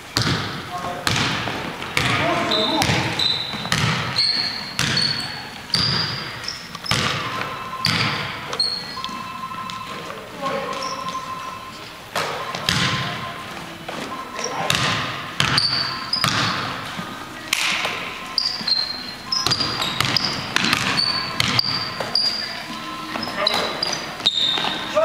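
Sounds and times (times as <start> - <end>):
sneakers squeaking on floor: 0.1 - 25.0
basketball bouncing on hardwood: 0.2 - 8.4, 12.2 - 13.3, 14.7 - 16.7, 19.4 - 22.0.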